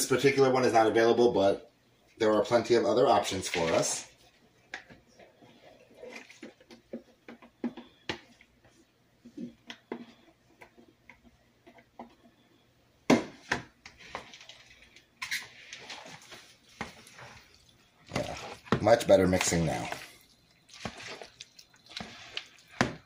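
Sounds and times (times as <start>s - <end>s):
macaroni scraped from plastic container: 13.9s - 16.4s, 20.7s - 23.0s.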